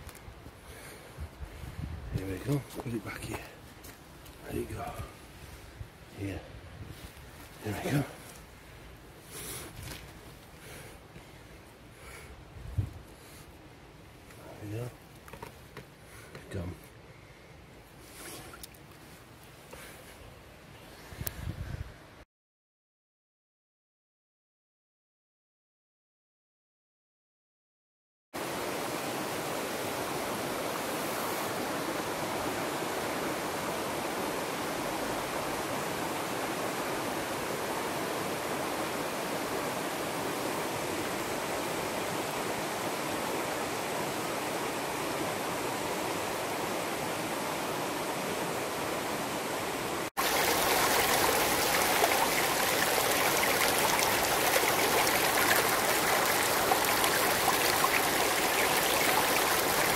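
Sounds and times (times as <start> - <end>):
stream flowing over stones: 28.4 - 59.9
water babbling over rocks: 46.3 - 59.9.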